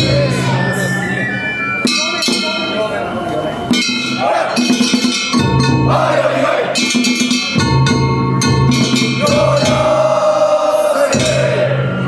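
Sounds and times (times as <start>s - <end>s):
people chanting: 0.0s - 1.2s, 4.1s - 5.1s, 5.7s - 7.2s, 8.8s - 12.0s
drums: 0.0s - 12.0s
held melody notes: 0.0s - 12.0s.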